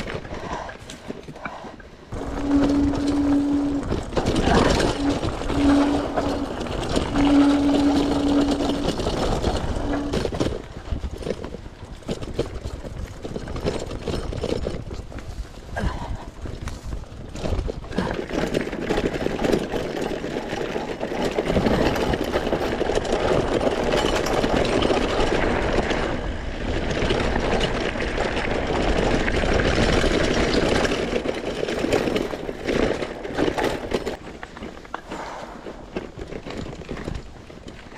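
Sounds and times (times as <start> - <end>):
bike rattling over rough ground: 0.0 - 37.9.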